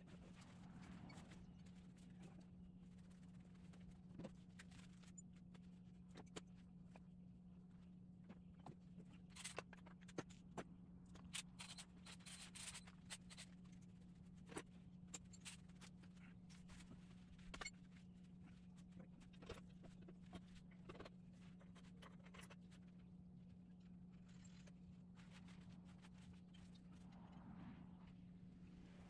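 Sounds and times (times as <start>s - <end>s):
low hum: 10.8s - 29.0s.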